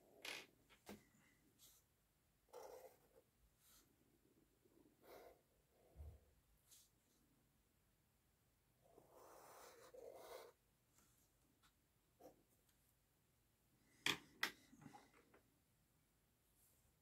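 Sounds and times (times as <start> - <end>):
marker scratching on paper: 2.5 - 3.9, 9.0 - 10.6.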